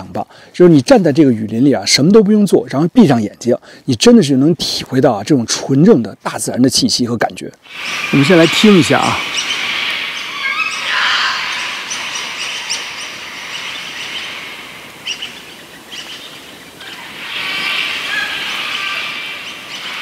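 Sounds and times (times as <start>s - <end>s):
steady outdoor hiss: 0.0s - 20.0s
birds chirping in chorus: 7.7s - 20.0s.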